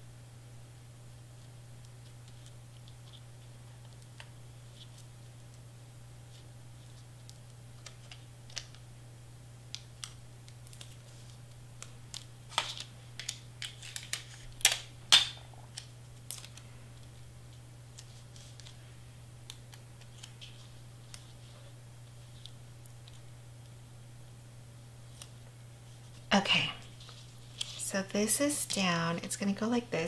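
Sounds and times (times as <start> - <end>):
paper rustling: 17.9 - 18.8, 19.5 - 23.2, 26.9 - 27.8.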